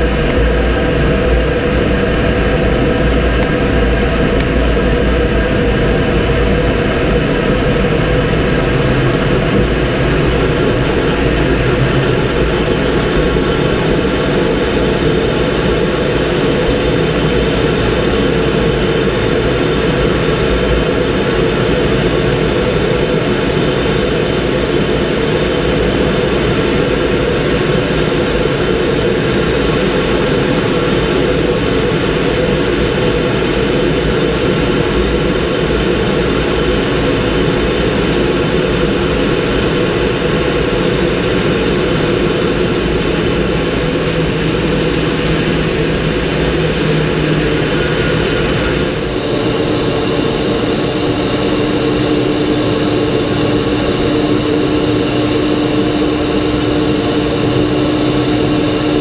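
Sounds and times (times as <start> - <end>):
jet engine rush and whine: 0.0 - 59.0.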